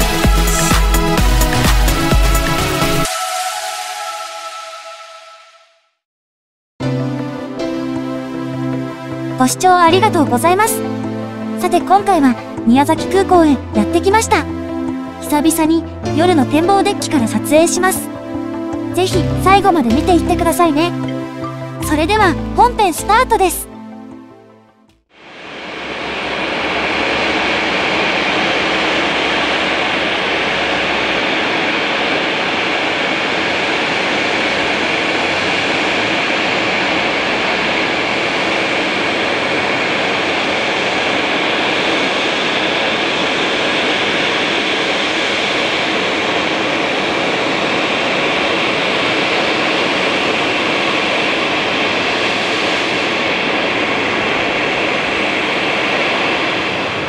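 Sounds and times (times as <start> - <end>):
jet engine hiss: 25.2 - 57.0.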